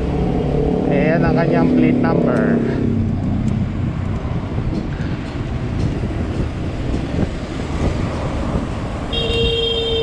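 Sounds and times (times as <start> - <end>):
motor traffic: 0.0 - 10.0
road noise: 0.0 - 10.0
wind rushing on microphone: 2.0 - 10.0.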